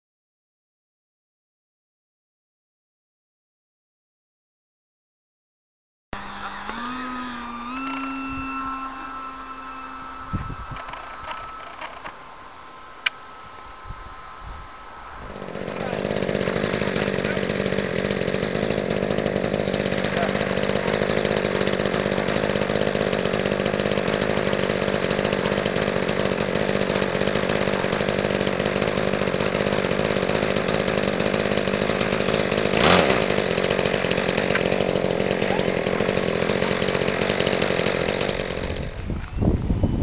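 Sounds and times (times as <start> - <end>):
model plane engine running: 6.2 - 12.5, 15.0 - 40.0.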